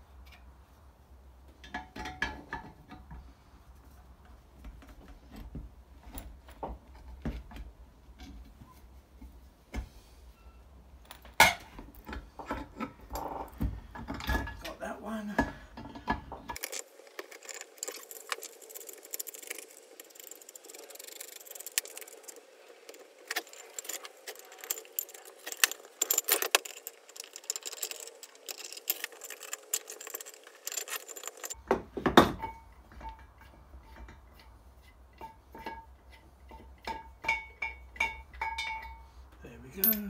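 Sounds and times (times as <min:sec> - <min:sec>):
metal clinking and rattling: 0:15.8 - 0:31.6, 0:32.3 - 0:39.1, 0:39.8 - 0:40.0.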